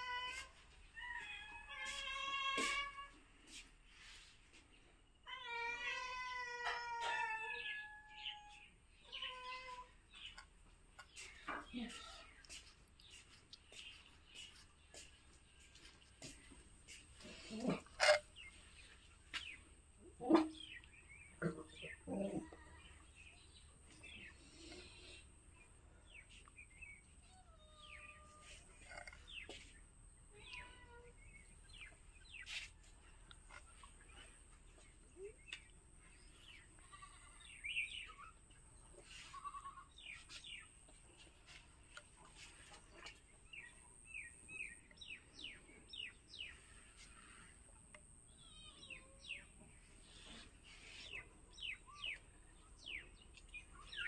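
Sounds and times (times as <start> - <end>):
cat meowing: 5.3 - 10.0.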